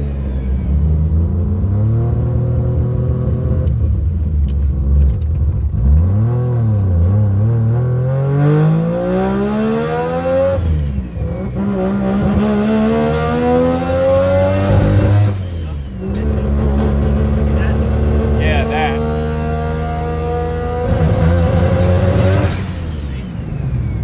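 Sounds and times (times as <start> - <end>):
rotary engine accelerating hard: 0.0 - 24.0.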